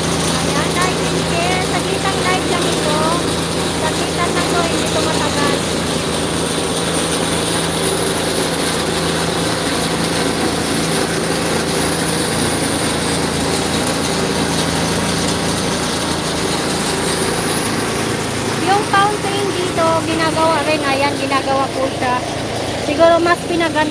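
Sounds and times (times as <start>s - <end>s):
truck engine running: 0.0s - 23.9s
water spraying from hose: 0.0s - 23.9s.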